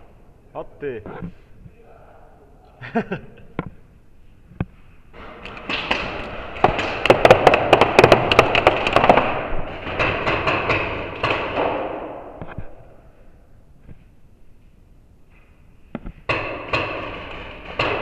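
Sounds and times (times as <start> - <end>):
paintball markers firing: 5.6 - 9.5.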